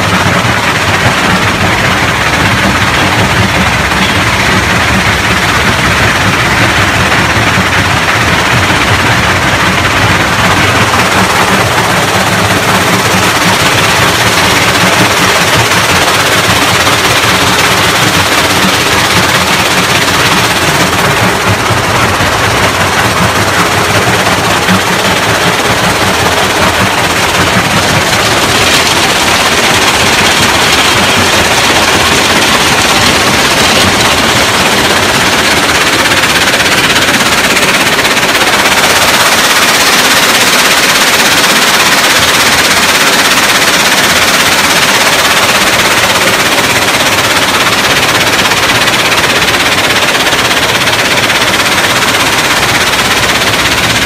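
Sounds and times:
rock crusher clattering: 0:00.0 - 0:54.0.

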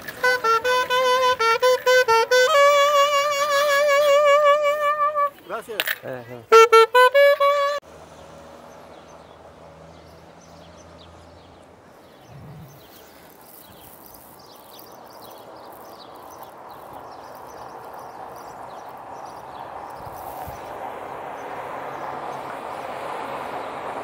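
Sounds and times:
outdoor background noise: 0:00.0 - 0:24.0.

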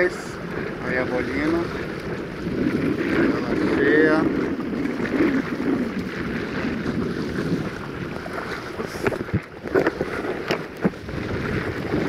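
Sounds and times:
water splashing along kayak hull: 0:00.0 - 0:12.0
wind buffeting microphone: 0:00.0 - 0:12.0.

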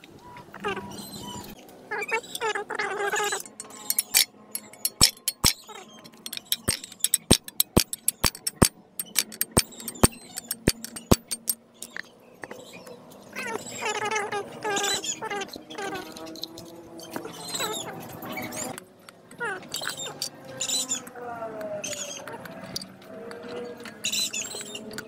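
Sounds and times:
wavering pitched call: 0:00.5 - 0:07.4, 0:12.4 - 0:18.8
metallic clicks and taps: 0:03.4 - 0:13.0.

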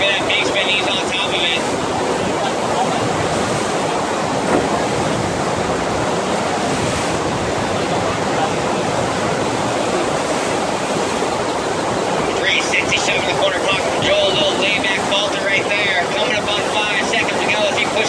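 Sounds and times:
water rushing: 0:00.0 - 0:18.0.

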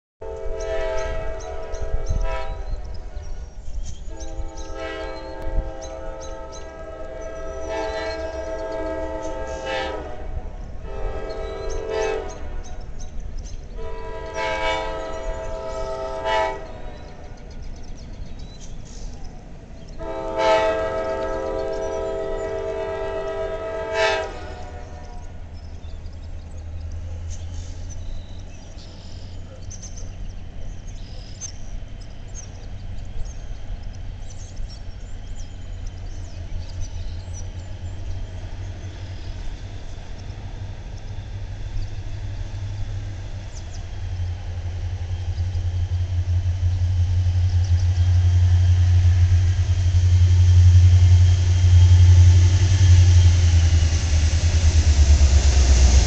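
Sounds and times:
locomotive air horn blasts: 0:00.2 - 0:03.4, 0:04.1 - 0:12.8, 0:13.7 - 0:17.3, 0:20.0 - 0:25.4
train rumble: 0:00.2 - 0:56.0.

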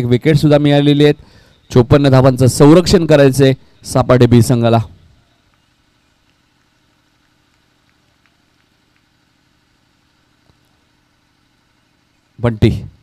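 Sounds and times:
faint steady low hum: 0:00.0 - 0:13.0
faint ticks: 0:05.4 - 0:09.2.

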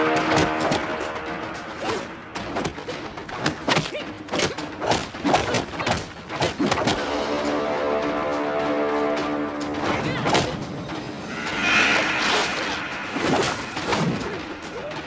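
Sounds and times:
dramatic background music: 0:00.0 - 0:15.0
punches and body blows: 0:01.8 - 0:07.0.

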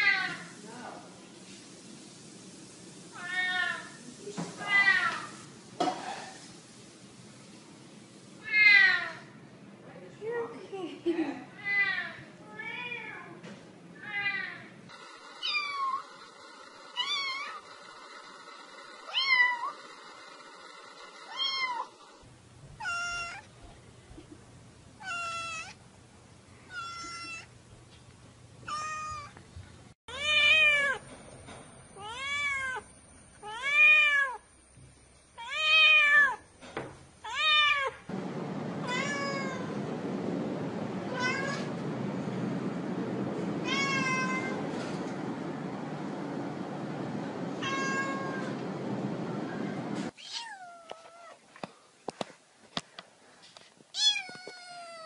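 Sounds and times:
steady hiss: 0:00.2 - 0:08.6
cat meowing: 0:19.1 - 0:19.7, 0:21.3 - 0:21.9, 0:22.8 - 0:23.5, 0:25.0 - 0:25.8, 0:26.7 - 0:27.5, 0:28.7 - 0:29.3, 0:30.1 - 0:31.0, 0:32.0 - 0:32.8, 0:38.8 - 0:39.7, 0:41.1 - 0:41.8, 0:43.6 - 0:44.6, 0:47.6 - 0:48.5, 0:50.2 - 0:51.4, 0:54.0 - 0:55.0.

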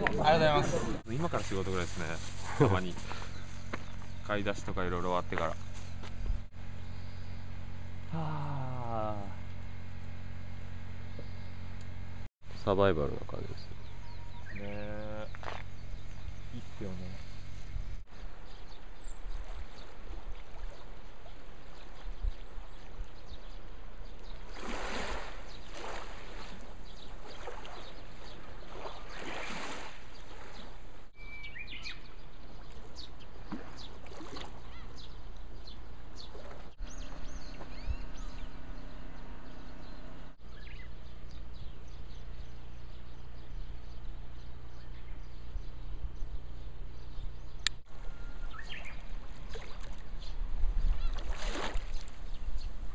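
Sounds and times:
low seaside rumble: 0:00.0 - 0:31.1
bird calls chirping: 0:02.6 - 0:06.0, 0:12.5 - 0:24.8, 0:25.4 - 0:51.3.

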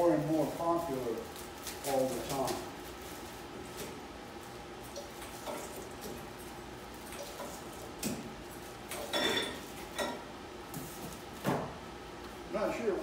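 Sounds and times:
plastic bags rustling: 0:00.0 - 0:08.8.

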